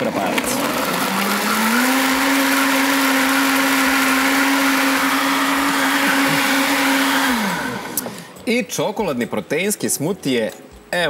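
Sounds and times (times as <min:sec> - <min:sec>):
blender motor whine: 0:00.0 - 0:08.4.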